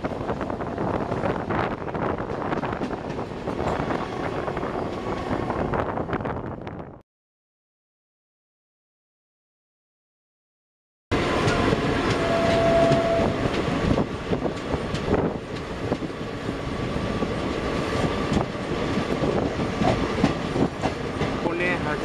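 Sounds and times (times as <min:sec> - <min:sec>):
trains rumbling past: 0:00.0 - 0:07.0, 0:11.1 - 0:22.0
wheels clicking over rail joints: 0:11.3 - 0:16.1.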